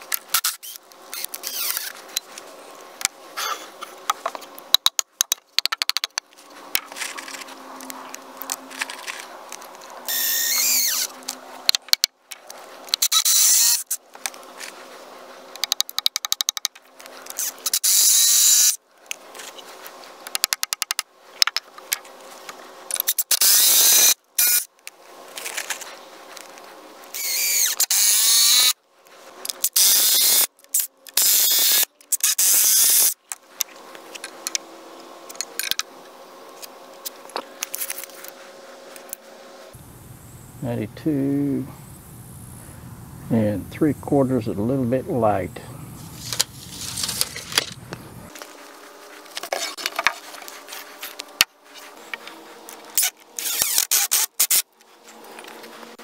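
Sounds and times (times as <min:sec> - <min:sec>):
cordless drill boring into wood: 0:00.4 - 0:01.9, 0:10.1 - 0:11.1, 0:23.1 - 0:24.6, 0:27.2 - 0:28.7, 0:31.2 - 0:33.1, 0:53.0 - 0:54.6.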